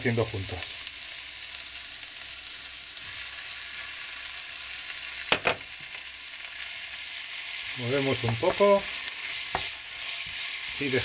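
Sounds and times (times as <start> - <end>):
vegetables sizzling in a wok: 0.0 - 11.0.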